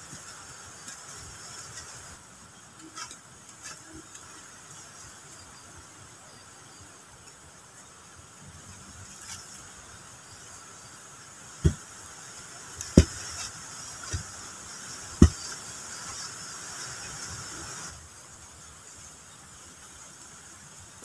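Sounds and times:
wooden post thudding into soil: 11.6 - 11.9, 12.8 - 14.4, 15.1 - 15.6.

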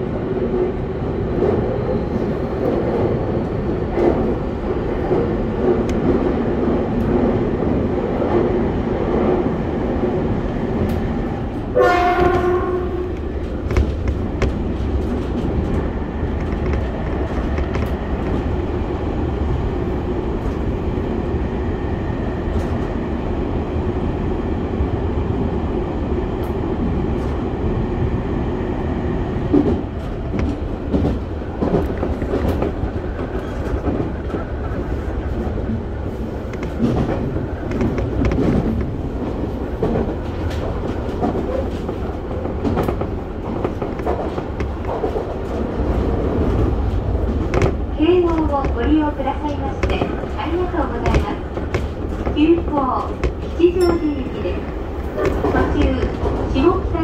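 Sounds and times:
train rumble in tunnel: 0.0 - 57.0
train horn blast: 11.8 - 13.2.

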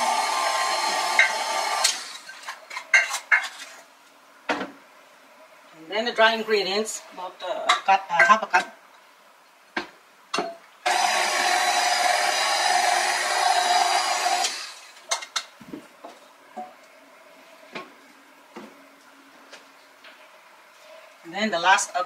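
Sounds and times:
electric mixer running: 0.0 - 2.3, 10.9 - 15.0.

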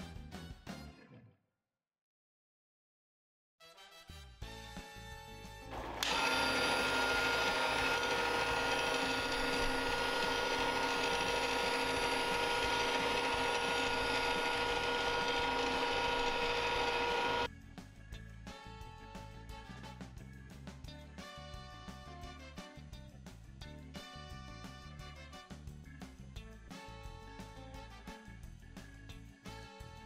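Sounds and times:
toy motor whining: 5.7 - 17.5.

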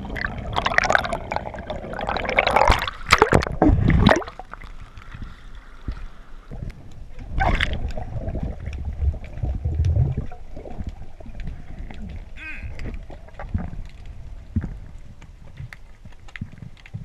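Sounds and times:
muffled underwater gurgling: 0.0 - 4.4, 6.5 - 15.2
water splashing against camera: 0.0 - 17.0.

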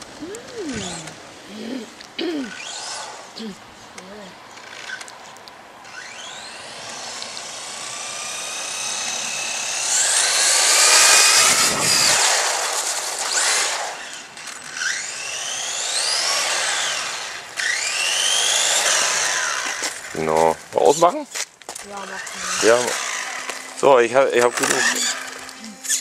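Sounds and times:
electric toy car motor whining: 0.2 - 1.2, 2.5 - 3.4, 4.6 - 5.1, 5.8 - 21.1, 21.9 - 26.0
rushing noise: 6.6 - 14.2.

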